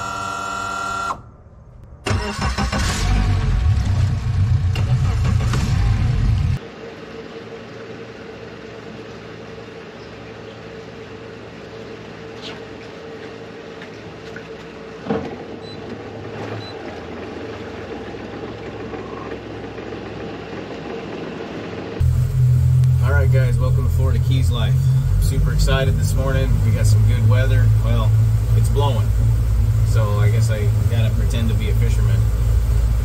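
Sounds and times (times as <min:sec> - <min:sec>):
outboard motor idling: 0:06.6 - 0:33.0.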